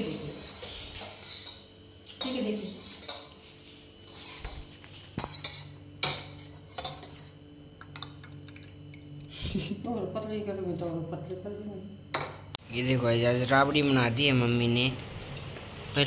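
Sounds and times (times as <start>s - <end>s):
spoon scraping a metal bowl: 0.0s - 8.1s.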